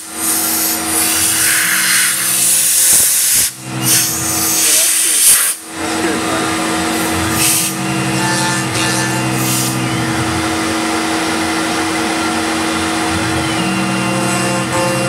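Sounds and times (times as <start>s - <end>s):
milling machine cutting wood: 5.8s - 15.0s.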